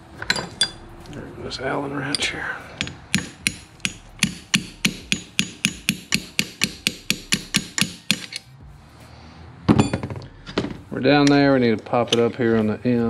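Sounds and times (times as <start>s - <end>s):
hammer tapping metal: 2.1s - 8.4s.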